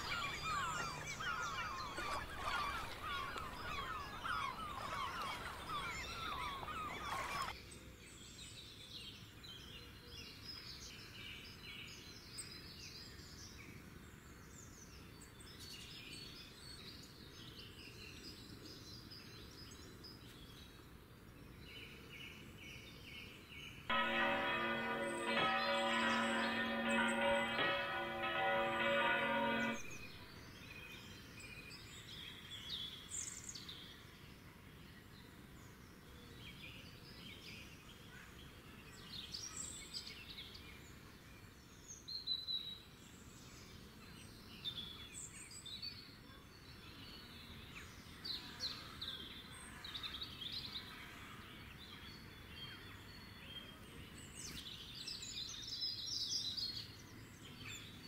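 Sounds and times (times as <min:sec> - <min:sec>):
birds chirping: 0:00.0 - 0:07.6, 0:23.9 - 0:30.6.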